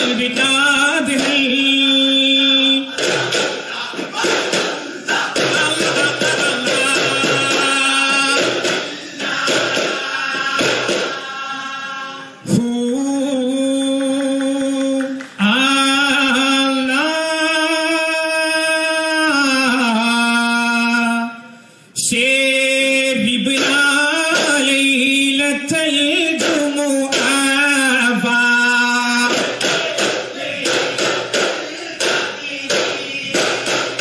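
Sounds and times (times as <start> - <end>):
frame drums struck in rhythm: 0.0 - 11.4, 23.3 - 34.0
men singing in unison: 0.0 - 21.3, 22.0 - 34.0.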